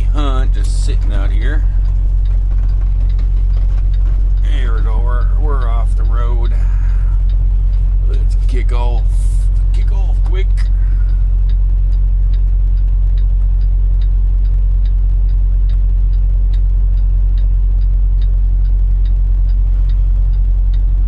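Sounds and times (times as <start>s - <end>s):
diesel engine idling: 0.0s - 21.0s
light regular ticking: 0.0s - 21.0s.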